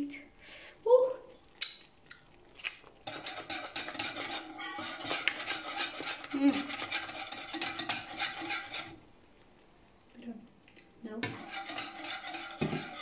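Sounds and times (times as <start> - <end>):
wire whisk scraping a pan: 3.0 - 9.0, 11.2 - 13.0.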